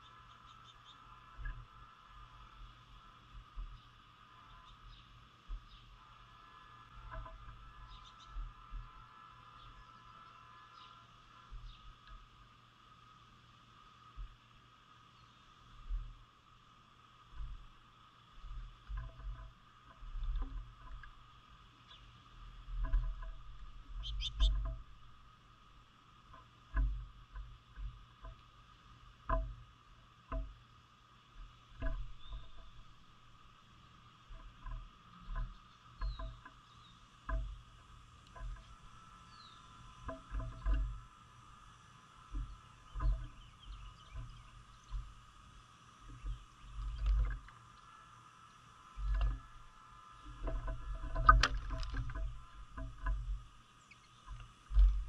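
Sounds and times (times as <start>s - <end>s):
faint high bird chirp: 7.8s - 8.4s, 24.0s - 24.6s, 32.2s - 32.8s, 35.2s - 37.0s, 39.2s - 39.8s.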